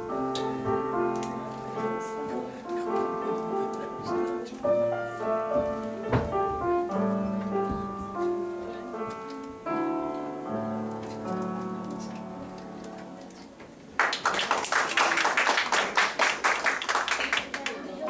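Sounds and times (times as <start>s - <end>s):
solo piano playing chords: 0.0s - 13.6s.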